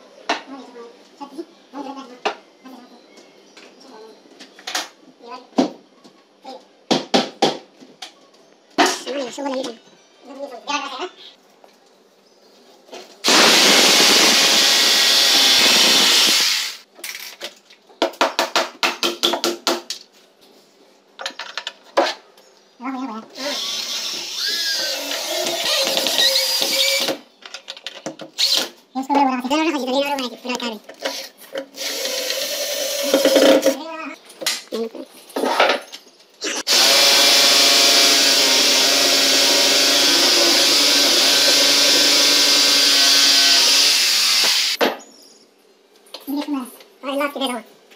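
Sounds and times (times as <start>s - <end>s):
electric drill boring through panel: 13.2s - 16.8s, 23.4s - 27.2s, 31.1s - 33.4s, 36.6s - 44.8s.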